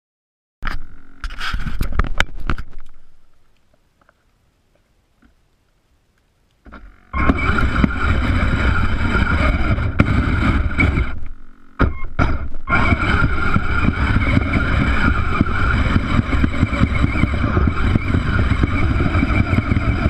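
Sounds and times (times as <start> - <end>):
electric motor and gearbox whine: 0.6 - 3.6, 6.6 - 20.0
blade pushing snow: 7.2 - 11.2, 12.7 - 20.0
knocks: 11.8 - 12.6.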